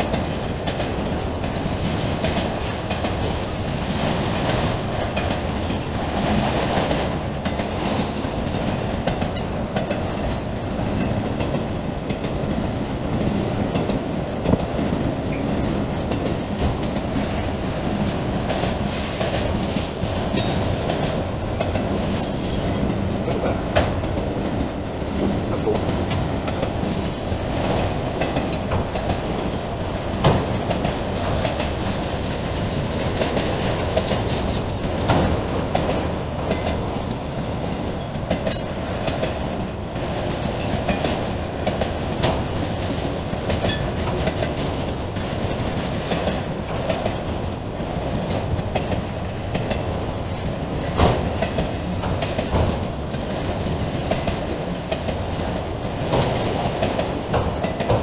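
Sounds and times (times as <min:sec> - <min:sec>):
steel wheels rolling on rail: 0:00.0 - 0:58.0.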